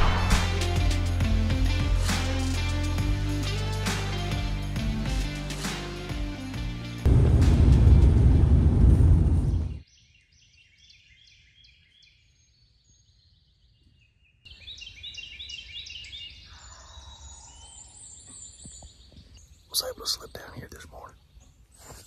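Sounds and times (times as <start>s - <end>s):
loud low rushing noise: 0.0s - 1.1s, 7.1s - 9.8s
songbirds singing: 9.7s - 22.0s.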